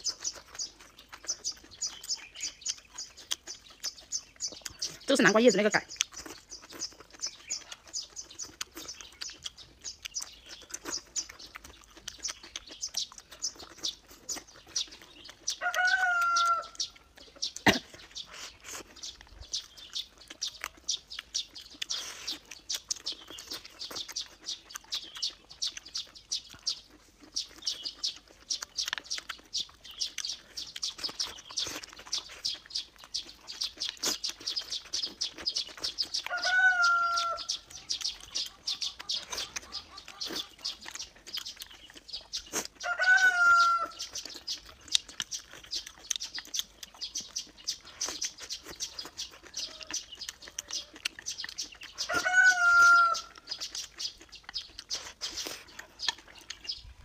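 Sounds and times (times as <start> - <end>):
wet mouth clicks: 0.0 - 15.6, 16.7 - 36.3, 37.5 - 42.8, 44.0 - 52.2, 53.2 - 57.0
chewing crunchy stems: 0.0 - 57.0
chicken calling: 13.1 - 19.2, 34.0 - 45.1, 45.8 - 56.6.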